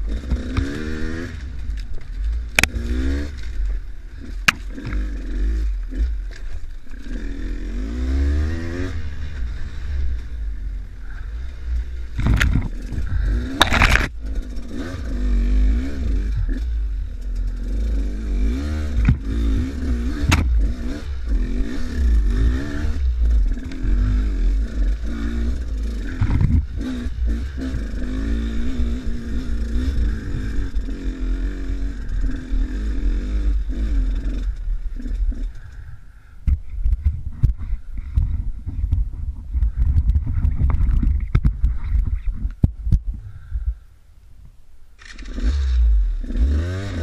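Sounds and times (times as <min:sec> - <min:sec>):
dirt bike engine revving: 0:00.0 - 0:35.8, 0:45.0 - 0:47.0
wind rumble on microphone: 0:08.2 - 0:17.4, 0:18.6 - 0:32.4, 0:33.5 - 0:44.6
bike knocking over stones: 0:12.2 - 0:14.2.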